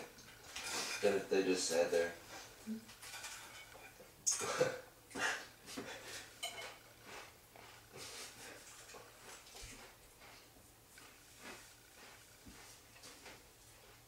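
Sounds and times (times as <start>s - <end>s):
people chewing and breathing: 4.4s - 14.0s.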